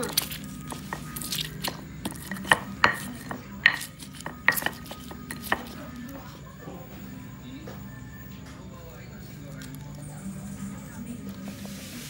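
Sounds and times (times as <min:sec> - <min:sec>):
stone pestle knocking on stone: 0:00.1 - 0:05.8.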